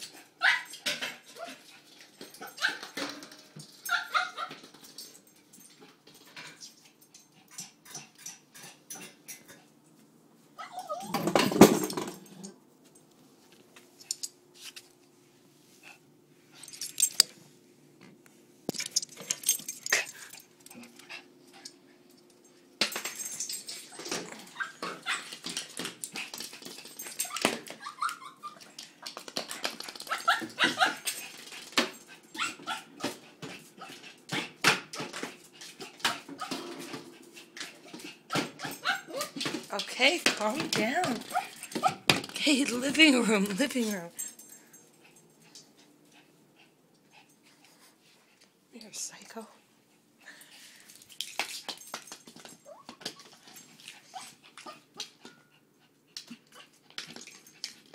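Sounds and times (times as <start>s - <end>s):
dog barking and whimpering: 0.1s - 1.6s, 2.4s - 3.0s, 3.8s - 4.6s, 10.6s - 11.4s, 24.3s - 25.4s, 27.2s - 28.8s, 30.1s - 31.2s, 32.2s - 33.2s, 38.2s - 39.4s.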